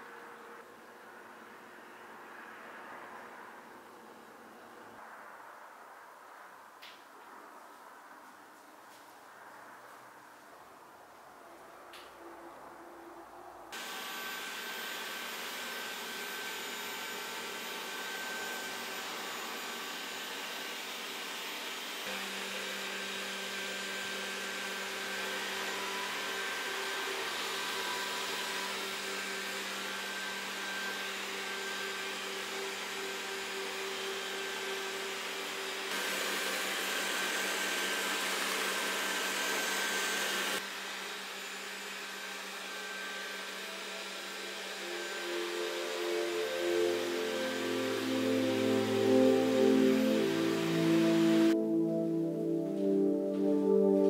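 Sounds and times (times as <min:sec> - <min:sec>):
robot vacuum cleaner whirring: 0:13.8 - 0:51.6.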